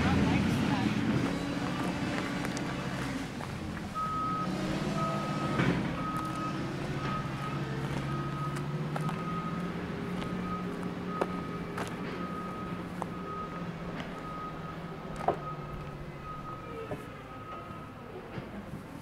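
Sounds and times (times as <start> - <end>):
engine running: 0.0 - 19.0
reversing alarm beeping: 4.0 - 18.1.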